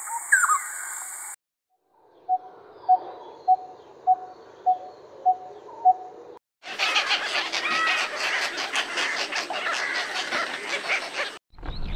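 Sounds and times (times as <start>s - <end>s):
bird call: 0.0s - 1.3s.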